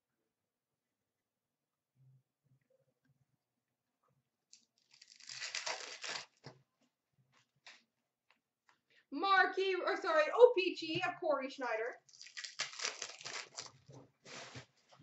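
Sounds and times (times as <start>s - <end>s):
wrapper tearing and crinkling: 4.6s - 6.5s, 12.1s - 14.5s.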